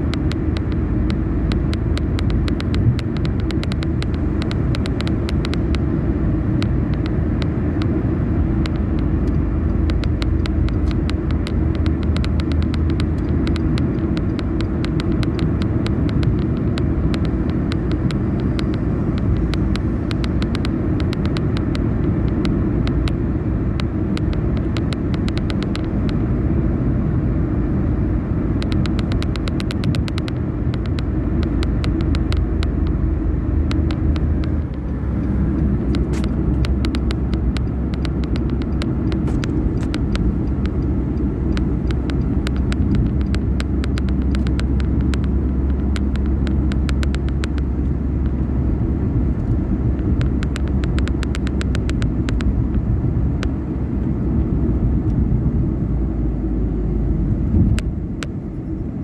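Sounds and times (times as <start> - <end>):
faint rapid clicks: 0.0 - 5.8, 8.6 - 23.2, 23.8 - 26.2, 28.6 - 33.0, 33.7 - 40.8, 41.5 - 48.4, 49.4 - 52.8
tyre and engine rumble: 0.0 - 59.0.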